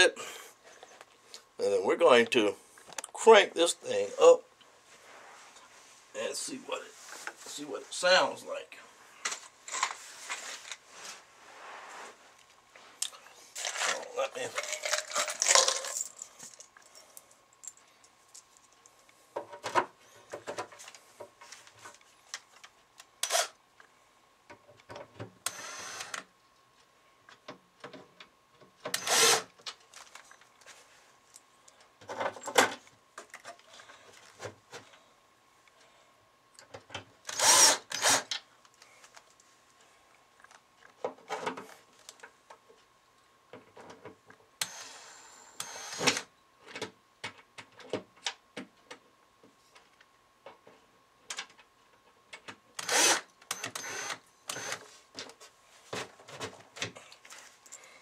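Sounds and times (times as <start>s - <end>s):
cordless drill driving screws into wood: 23.2s - 23.6s, 25.4s - 26.3s, 28.9s - 29.5s, 37.3s - 38.4s, 44.6s - 46.3s, 52.8s - 54.9s.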